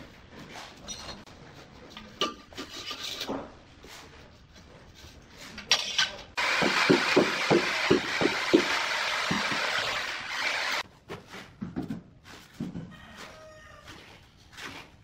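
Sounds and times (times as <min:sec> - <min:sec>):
metal straightedge scraping tile: 0:01.9 - 0:03.5, 0:05.4 - 0:06.3.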